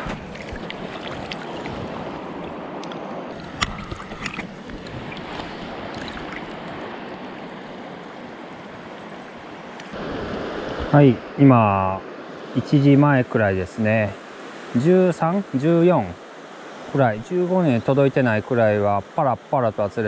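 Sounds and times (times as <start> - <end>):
river water rushing over rocks: 0.0 - 10.9.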